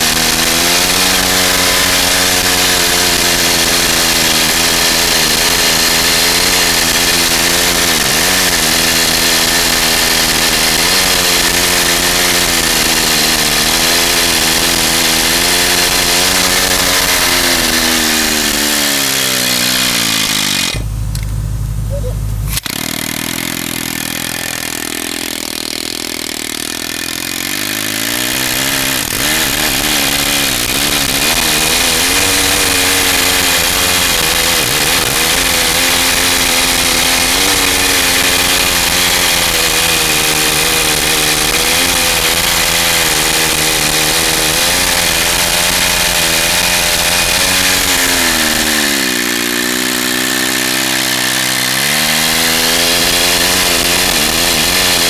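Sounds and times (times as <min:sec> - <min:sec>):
air motor chainsaw cutting logs: 0:00.0 - 0:55.0.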